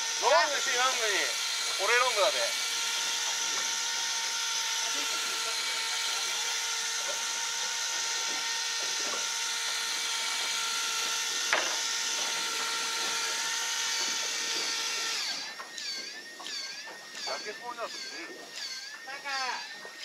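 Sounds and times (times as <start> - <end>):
fishing reel motor whining: 0.0 - 20.0
warbling calls: 12.9 - 20.0.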